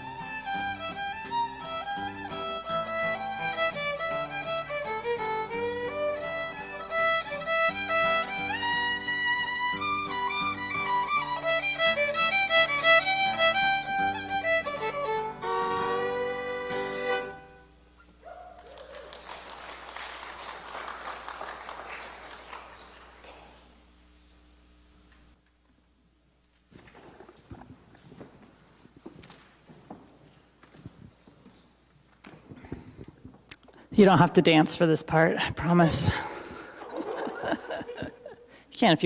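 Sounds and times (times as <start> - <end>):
fiddle: 0.0 - 17.8
acoustic guitar: 0.0 - 18.2, 32.4 - 39.0
people clapping: 18.5 - 23.8.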